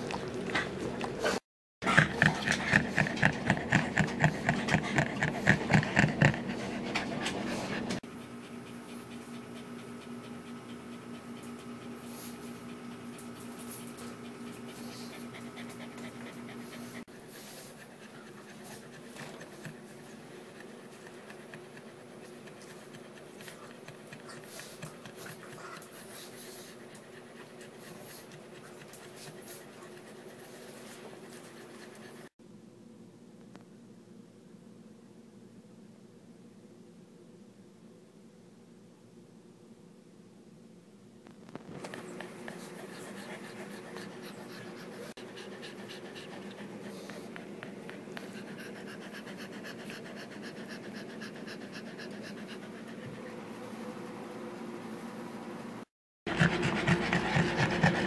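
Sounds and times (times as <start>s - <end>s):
dog panting: 0.0s - 32.3s, 41.8s - 53.6s, 56.3s - 58.0s.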